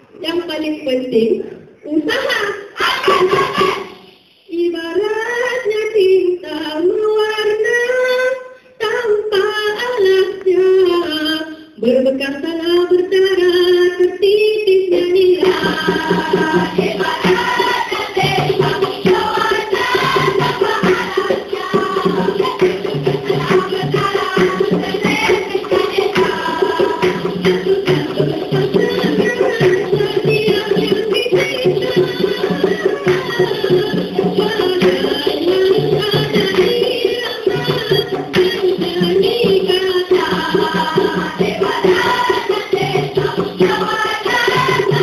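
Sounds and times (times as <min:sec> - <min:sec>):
rhythmic hand percussion: 0:02.2 - 0:04.4, 0:14.2 - 0:45.0
women singing together: 0:02.7 - 0:45.0.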